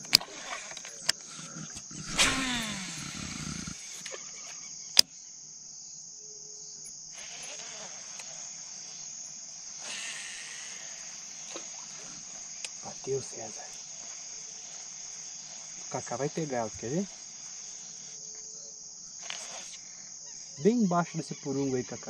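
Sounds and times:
fishing reel spool whirring: 0:00.0 - 0:05.1, 0:06.9 - 0:18.4
reel retrieve: 0:00.0 - 0:05.1, 0:06.8 - 0:21.6
insects buzzing: 0:00.0 - 0:22.0.

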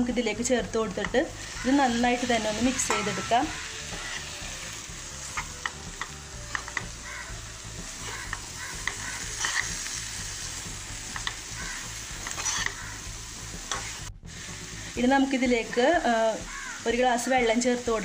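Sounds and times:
food sizzling in a pan: 0:00.0 - 0:18.0
spatula scraping a pan: 0:08.0 - 0:10.5, 0:11.1 - 0:13.0.

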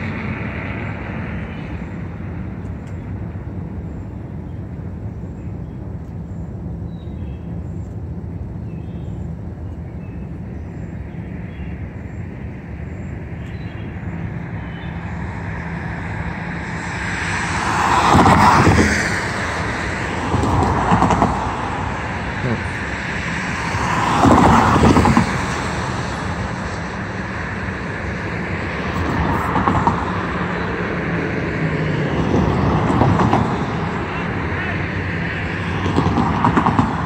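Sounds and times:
diesel locomotive idling: 0:19.2 - 0:24.0.

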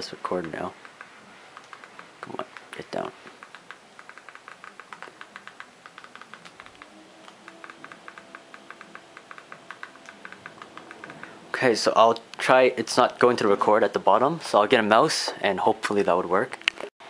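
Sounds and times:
control buttons clicking: 0:00.0 - 0:13.3.

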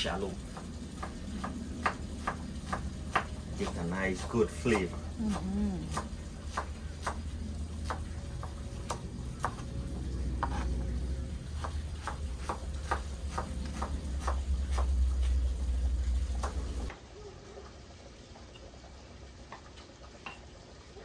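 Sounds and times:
knife tapping on wooden board: 0:00.5 - 0:07.2.

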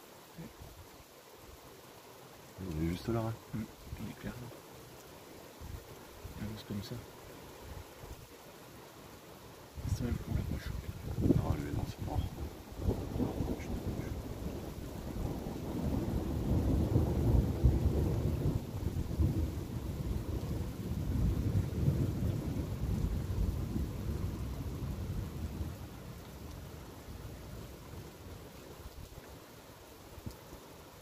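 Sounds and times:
rolling thunder: 0:09.8 - 0:25.8.

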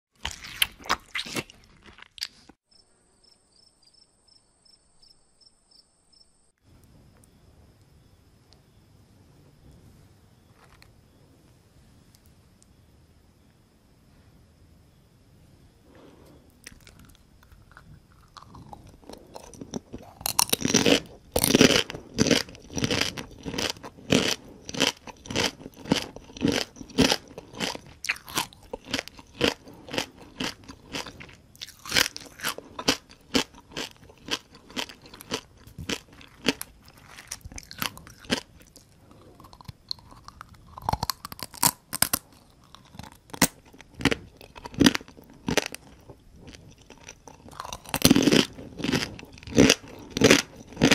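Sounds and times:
crunching and chewing fried crabs: 0:00.1 - 0:02.6, 0:16.5 - 0:50.9.

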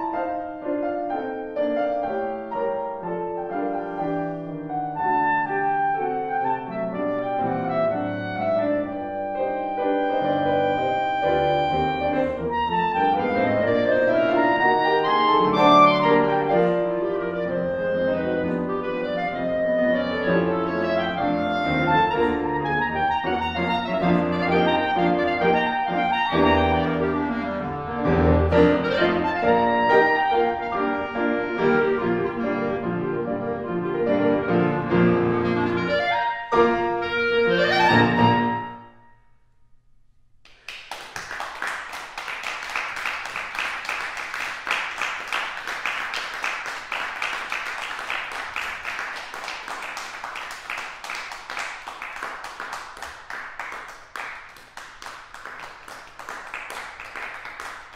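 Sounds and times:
clarinet: 0:00.0 - 0:39.3
piano: 0:00.0 - 0:39.7, 0:40.5 - 0:57.9
audience applauding: 0:40.5 - 0:57.9.

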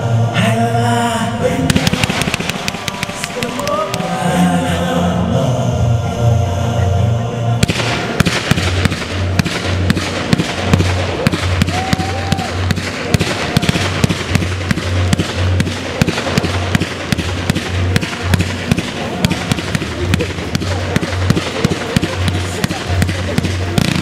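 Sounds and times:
music playing: 0:00.0 - 0:24.0
fireworks bangs and crackle: 0:01.7 - 0:04.2, 0:07.6 - 0:24.0.

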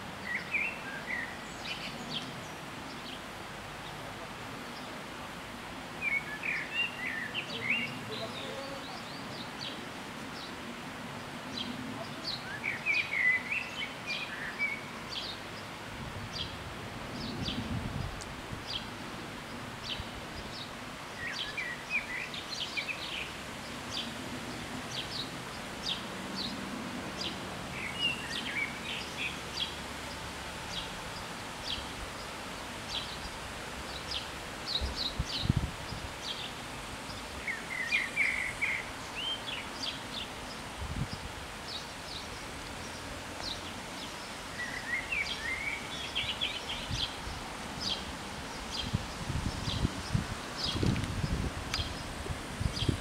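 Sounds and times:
outdoor background hiss: 0:00.0 - 0:53.0
small birds chirping: 0:06.0 - 0:10.6, 0:17.2 - 0:53.0.

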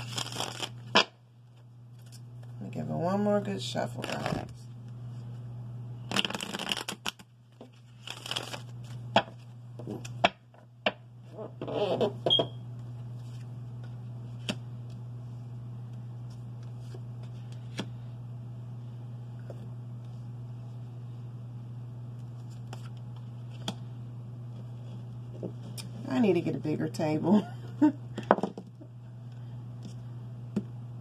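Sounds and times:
cards shuffling: 0:00.0 - 0:01.1, 0:04.0 - 0:04.5, 0:06.1 - 0:10.2
steady low hum: 0:00.0 - 0:31.0.

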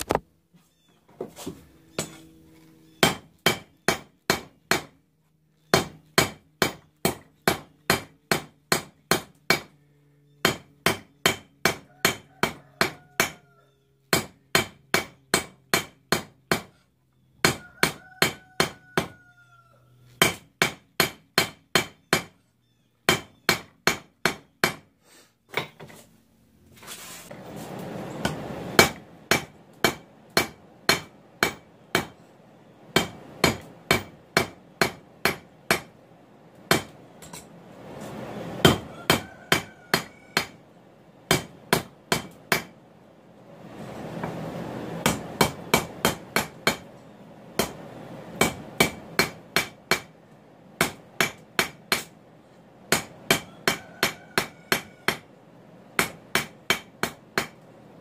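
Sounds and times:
hammer striking hot steel on anvil: 0:02.0 - 0:02.2, 0:03.0 - 0:05.0, 0:05.7 - 0:09.7, 0:10.4 - 0:13.4, 0:14.1 - 0:16.7, 0:17.4 - 0:19.1, 0:20.2 - 0:22.3, 0:23.1 - 0:24.9, 0:28.2 - 0:32.2, 0:32.9 - 0:35.9, 0:36.7 - 0:37.5, 0:38.6 - 0:40.6, 0:41.3 - 0:42.7, 0:45.0 - 0:46.9, 0:47.6 - 0:47.8, 0:48.4 - 0:50.1, 0:50.8 - 0:52.2, 0:52.9 - 0:55.3, 0:56.0 - 0:57.6.

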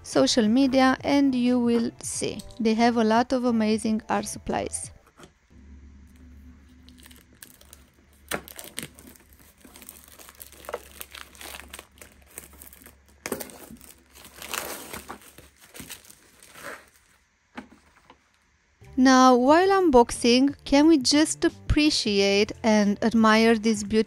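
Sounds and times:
plastic shrink wrap crinkling and tearing: 0:06.7 - 0:17.3.

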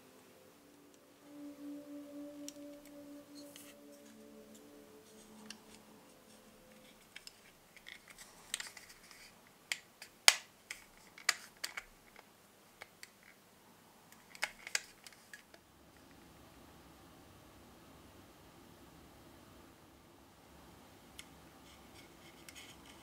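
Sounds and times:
plastic parts clicking: 0:07.2 - 0:13.4, 0:14.2 - 0:15.5.

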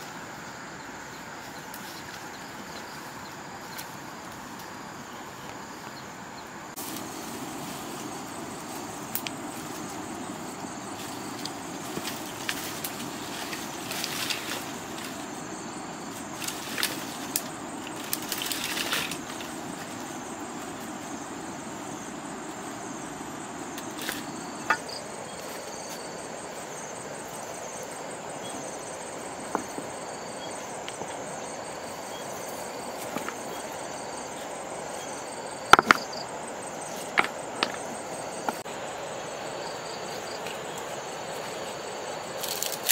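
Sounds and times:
outdoor background hiss: 0:00.0 - 0:42.9
dry branches rustling: 0:06.8 - 0:35.5, 0:39.6 - 0:42.9
stone knocking on stone: 0:35.7 - 0:36.1.

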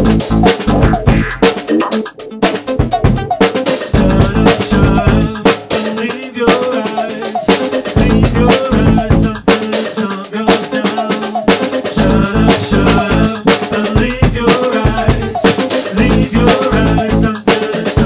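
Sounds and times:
looped bass riff: 0:00.0 - 0:05.5, 0:07.9 - 0:09.5, 0:11.9 - 0:17.4
higher melodic lines: 0:00.0 - 0:05.9
drum beat: 0:00.0 - 0:18.0.

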